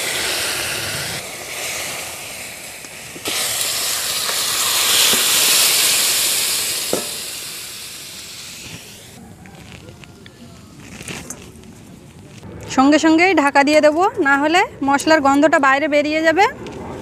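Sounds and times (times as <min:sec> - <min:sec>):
hot oil sizzling in a wok: 0:00.0 - 0:09.2.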